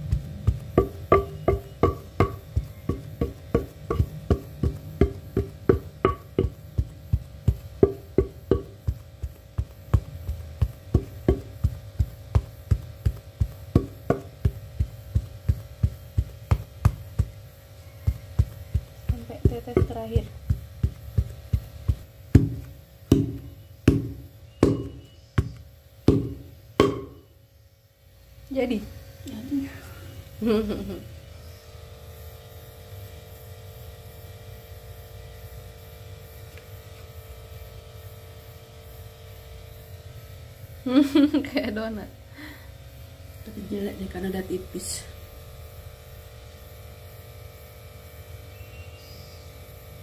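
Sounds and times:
pestle pounding in stone mortar: 0.0s - 27.3s.

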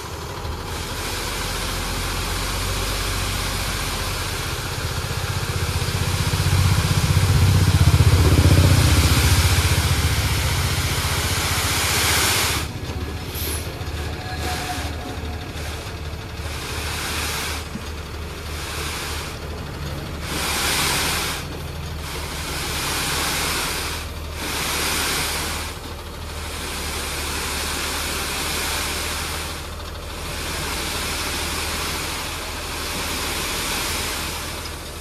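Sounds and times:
sand pouring off truck: 0.0s - 6.8s, 8.6s - 13.7s, 16.4s - 17.7s, 20.2s - 35.0s
diesel engine running: 0.0s - 35.0s.

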